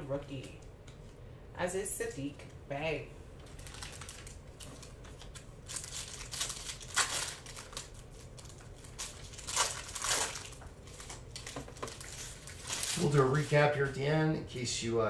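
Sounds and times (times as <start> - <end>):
foil wrapper tearing and crinkling: 3.5 - 13.7.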